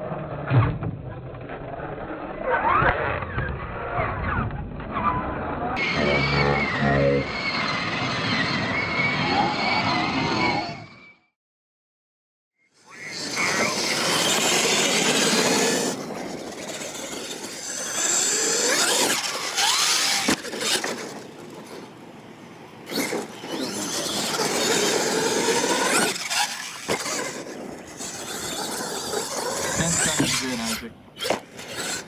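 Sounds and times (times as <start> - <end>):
toy truck motor whining: 5.8 - 11.3, 12.8 - 22.0, 22.8 - 32.0.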